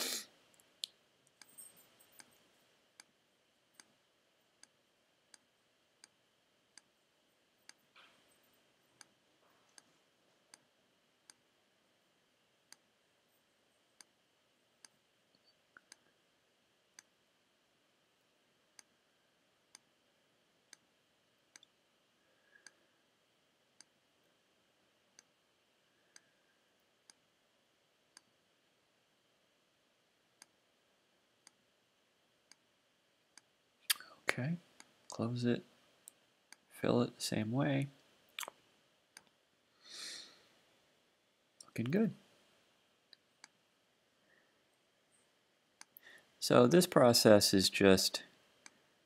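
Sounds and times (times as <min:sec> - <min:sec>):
faint mouse clicks: 0:21.5 - 0:21.8.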